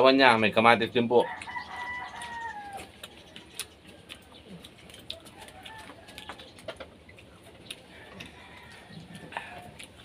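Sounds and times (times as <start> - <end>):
rooster crowing: 1.2 - 3.1, 5.1 - 6.5, 7.9 - 9.9
faint eating clicks: 1.2 - 10.0.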